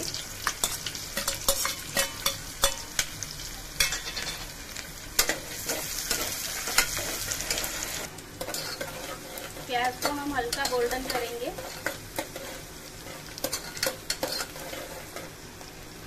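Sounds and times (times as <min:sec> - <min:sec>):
onion sizzling in hot oil: 0:00.0 - 0:16.0
spoon clicking and scraping pot: 0:13.4 - 0:14.8.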